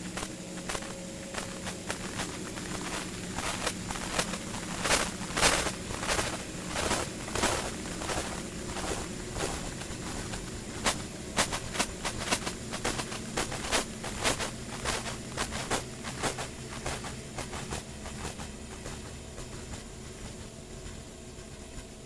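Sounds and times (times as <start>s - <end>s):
sharp clicks and crackles: 0.0s - 20.5s
low drone hum: 0.0s - 22.0s.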